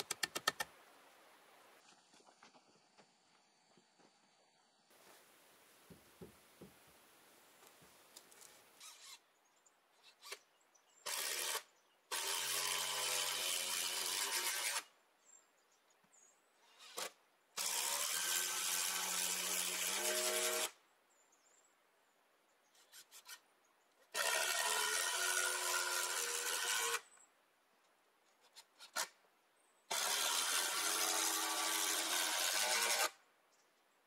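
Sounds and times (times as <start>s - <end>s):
small knocks: 5.8s - 6.8s
power drill driving screws: 11.0s - 14.9s, 16.7s - 20.8s, 24.1s - 27.0s, 29.9s - 33.2s.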